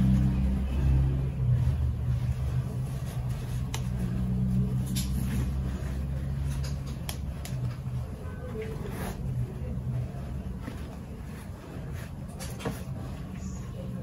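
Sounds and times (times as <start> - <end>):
engine hum: 0.0 - 11.6.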